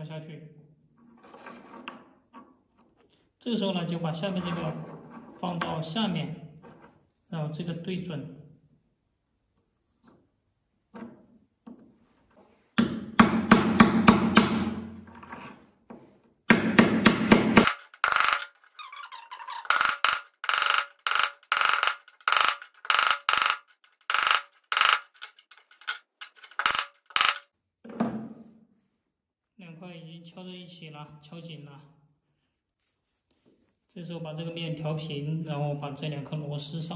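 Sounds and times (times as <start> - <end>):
rapid wooden knocks: 16.5 - 18.7, 19.4 - 27.4.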